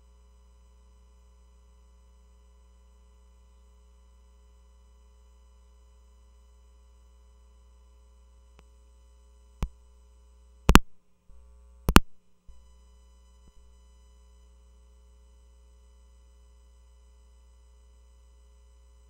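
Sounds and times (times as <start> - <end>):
electrical hum: 10.7 - 11.0, 11.9 - 12.6
microphone clicks and pops: 10.7 - 12.6.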